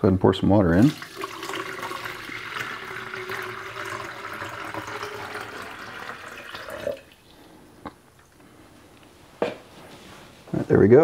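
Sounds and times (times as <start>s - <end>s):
water pouring into hollow form: 0.8s - 7.4s.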